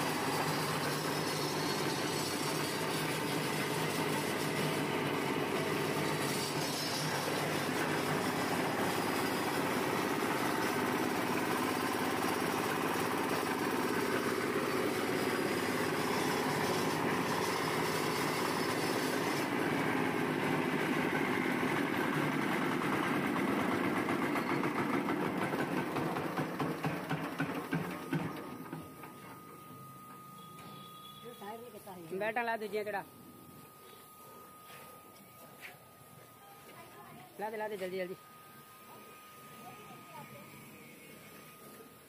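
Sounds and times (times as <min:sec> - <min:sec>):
diesel engine running: 0:00.0 - 0:30.0.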